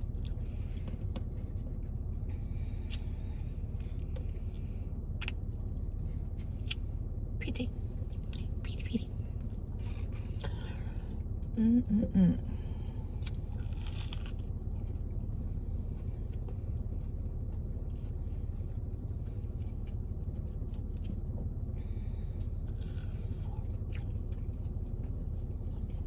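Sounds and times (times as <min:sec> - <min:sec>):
low car rumble: 0:00.0 - 0:26.0
person eating: 0:12.4 - 0:14.5.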